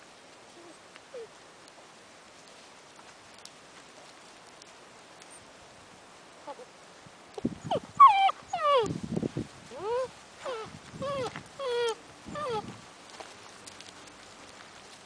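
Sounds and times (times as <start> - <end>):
puppies whining and yelping: 7.6 - 8.9, 9.7 - 12.7.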